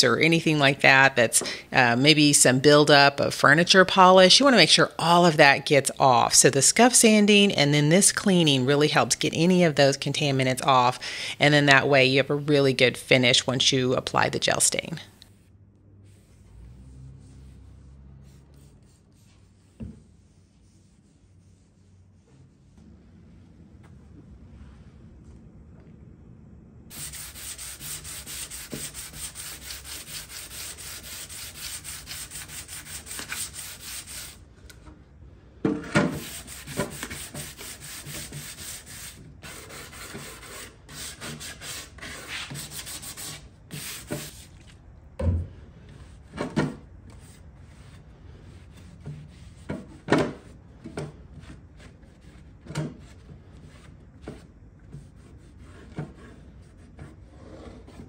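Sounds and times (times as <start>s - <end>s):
sanding sponge scrubbing wood: 16.1s - 22.7s, 26.9s - 34.4s, 36.2s - 44.5s.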